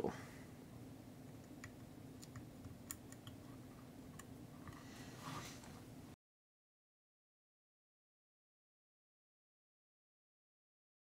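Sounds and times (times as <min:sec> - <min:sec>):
faint low hum: 0:00.0 - 0:06.2.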